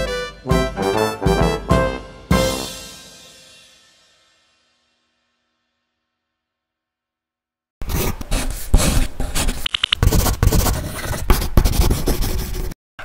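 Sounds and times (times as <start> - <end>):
pencil scribbling on paper: 7.8 - 12.8.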